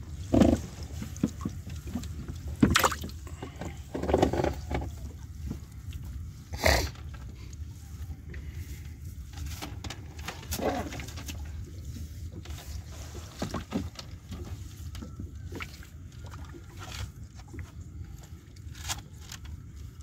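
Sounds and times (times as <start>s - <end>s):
steady low hum: 0.0s - 20.0s
water splashing and dripping: 0.8s - 3.3s.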